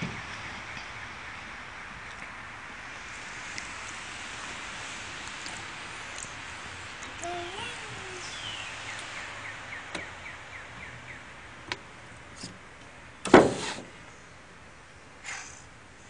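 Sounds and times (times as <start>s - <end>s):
child vocal sound: 7.1s - 8.4s
loud thump on window: 13.3s - 13.9s.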